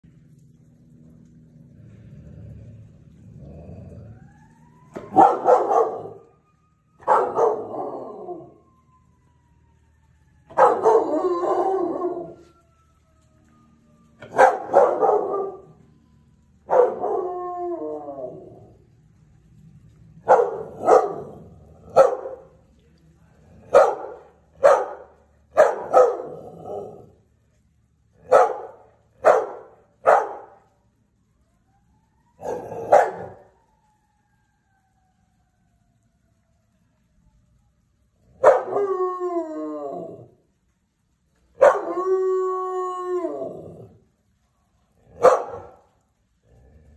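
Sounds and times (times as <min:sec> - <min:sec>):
siren: 0:00.0 - 0:46.9
dog barking: 0:05.0 - 0:06.3, 0:07.0 - 0:07.9, 0:10.5 - 0:12.3, 0:14.2 - 0:15.7, 0:16.6 - 0:17.3, 0:20.2 - 0:22.6, 0:23.6 - 0:26.9, 0:28.2 - 0:30.6, 0:32.4 - 0:33.4, 0:38.4 - 0:38.9, 0:41.6 - 0:42.0, 0:45.1 - 0:45.9
dog howling: 0:07.0 - 0:08.6, 0:10.5 - 0:12.6, 0:16.7 - 0:18.8, 0:38.3 - 0:40.4, 0:41.6 - 0:44.0.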